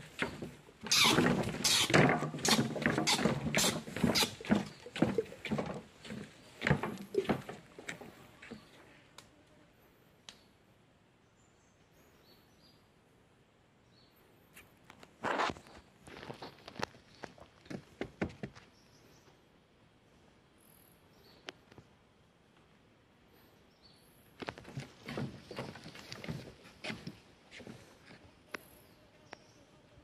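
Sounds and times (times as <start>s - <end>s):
footsteps on wooden boards: 0.0s - 8.7s, 16.1s - 18.7s, 24.4s - 28.2s.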